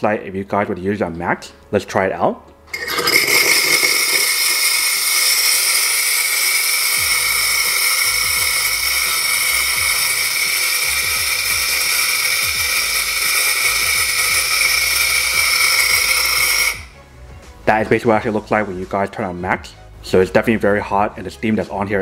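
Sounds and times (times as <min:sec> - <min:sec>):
steam wand hissing: 0:02.8 - 0:17.0.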